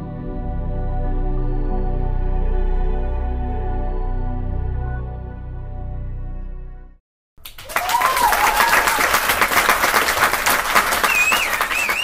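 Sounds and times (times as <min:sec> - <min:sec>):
soft ambient music: 0:00.0 - 0:07.0
crowd clapping: 0:07.4 - 0:12.0
whistles: 0:07.7 - 0:12.0.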